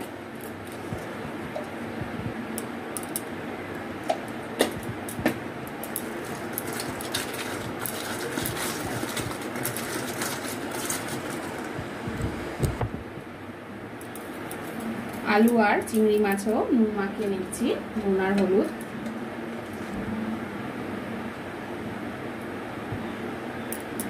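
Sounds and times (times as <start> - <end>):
vegetables rustling and squishing: 6.1 - 11.8.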